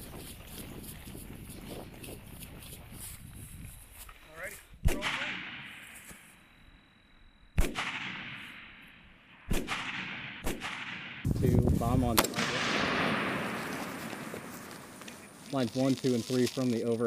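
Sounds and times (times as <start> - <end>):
rifle shots with echo: 4.8 - 5.8, 7.6 - 11.4, 12.0 - 15.1.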